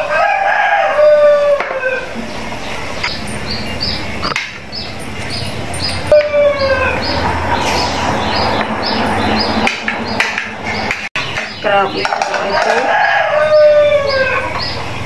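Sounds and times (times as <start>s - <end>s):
rooster crowing: 0.0s - 2.2s, 12.5s - 14.7s
small bird chirping: 2.2s - 12.6s, 13.4s - 15.0s.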